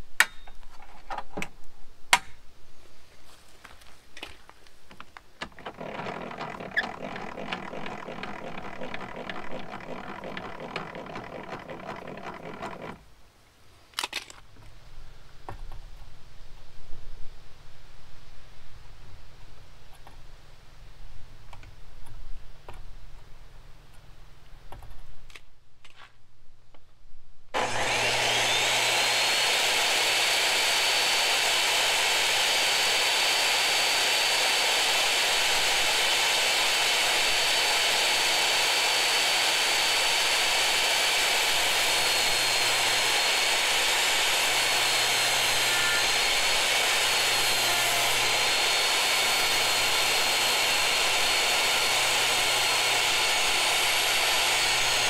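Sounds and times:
table saw motor whine: 0:05.5 - 0:13.0, 0:27.6 - 0:55.0.

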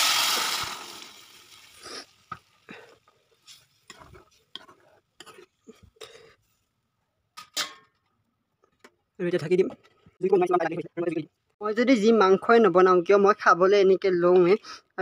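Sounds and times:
water sizzling in hot oil: 0:00.0 - 0:04.6.

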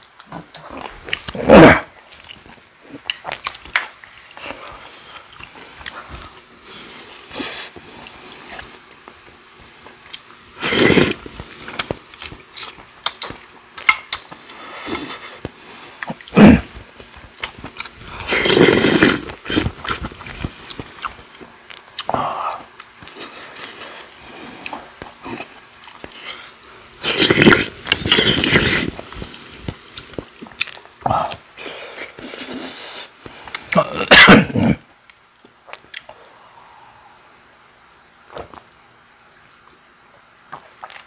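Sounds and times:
chewing: 0:00.1 - 0:01.4, 0:02.0 - 0:33.8, 0:35.1 - 0:36.2, 0:40.5 - 0:41.0
slurping broth from spoon: 0:10.6 - 0:11.6, 0:18.2 - 0:19.8, 0:27.0 - 0:29.4.

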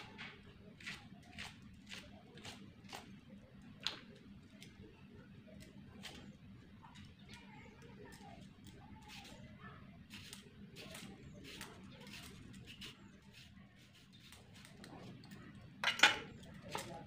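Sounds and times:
knife scraping radish: 0:00.8 - 0:03.1, 0:08.1 - 0:15.3.

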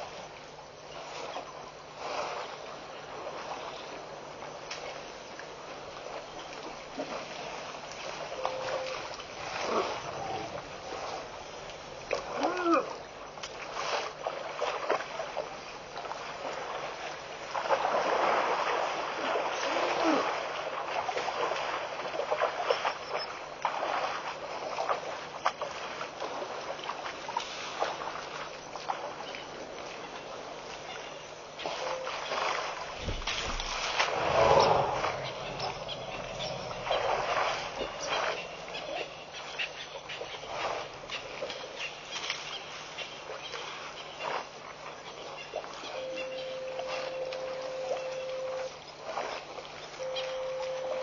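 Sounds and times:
water splashing and sloshing: 0:00.0 - 0:51.0
elephant calls: 0:33.0 - 0:40.6, 0:50.0 - 0:51.0.

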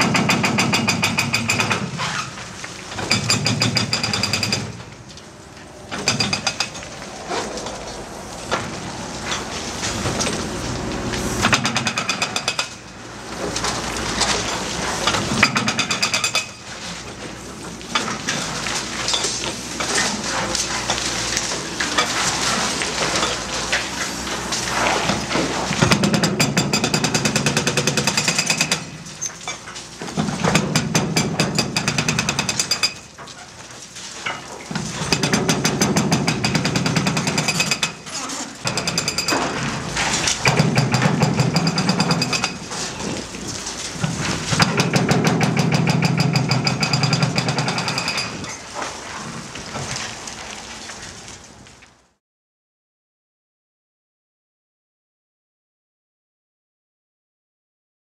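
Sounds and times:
hydraulic breaker pounding concrete: 0:00.0 - 0:02.3, 0:03.0 - 0:04.9, 0:11.4 - 0:16.6, 0:20.8 - 0:33.1, 0:34.2 - 0:49.3.

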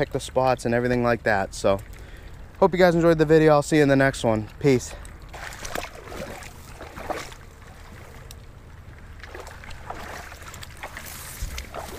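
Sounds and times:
water lapping at shore: 0:04.8 - 0:11.9
wind rumble on microphone: 0:05.2 - 0:11.9
footsteps on gravel: 0:09.2 - 0:11.9.

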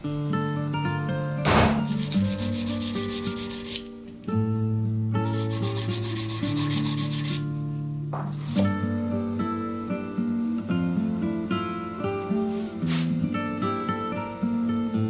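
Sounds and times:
guitar music: 0:00.0 - 0:15.0
punch knocking on brass: 0:01.5 - 0:02.0
file rasping on brass: 0:01.9 - 0:03.9, 0:05.4 - 0:07.4.

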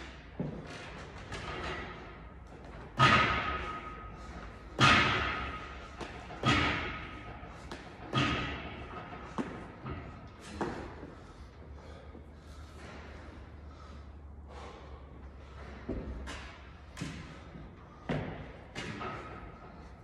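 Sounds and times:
metal pull-up bar clanking: 0:01.0 - 0:10.6.

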